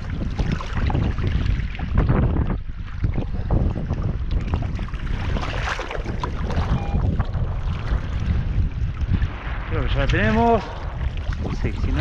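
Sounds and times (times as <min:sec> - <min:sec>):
wind rumbling on microphone: 0:00.0 - 0:12.0
river water splashing around legs: 0:03.8 - 0:06.8
short beep: 0:06.7 - 0:07.2.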